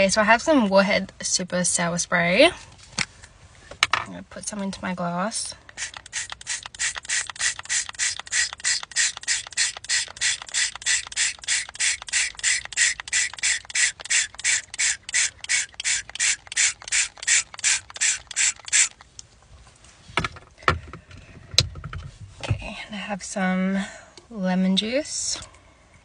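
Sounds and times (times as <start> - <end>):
spray bottle spritzes: 5.8 - 19.0.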